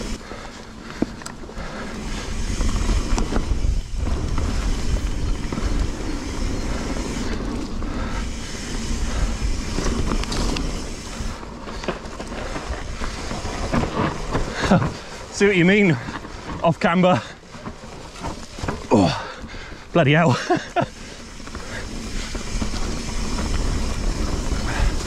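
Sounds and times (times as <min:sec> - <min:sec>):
bike rattling and clicking: 0:00.0 - 0:25.0
bike tyres rolling on dirt: 0:00.0 - 0:25.0
wind rumble on microphone: 0:02.0 - 0:11.4.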